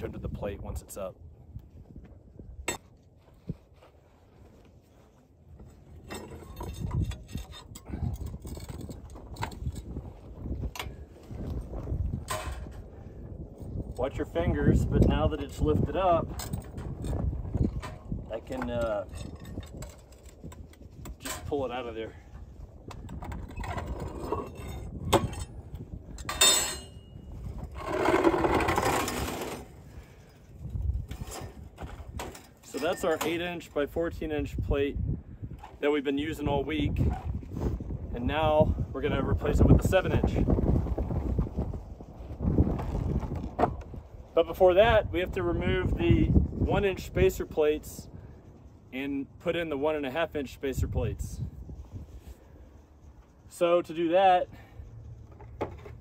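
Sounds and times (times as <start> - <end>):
metal tools clinking and scraping: 5.6 - 10.0, 15.4 - 22.4, 23.0 - 33.7.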